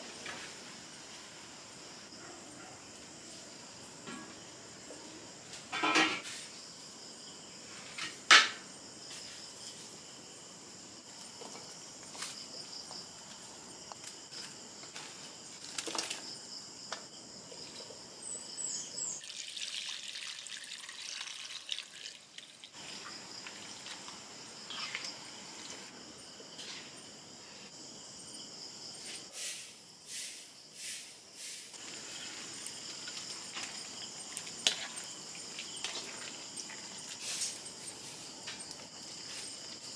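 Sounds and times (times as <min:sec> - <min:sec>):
crickets chirping: 0:00.0 - 0:39.9
hiss: 0:29.0 - 0:32.5, 0:37.1 - 0:38.3.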